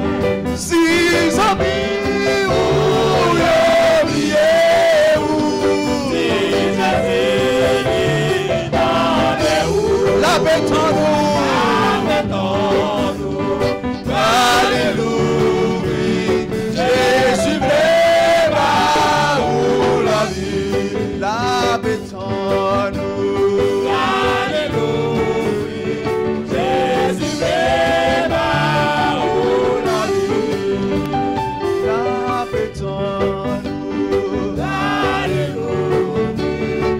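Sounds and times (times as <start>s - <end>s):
keyboard held chords: 0.0s - 21.9s
gospel singing: 0.0s - 36.9s.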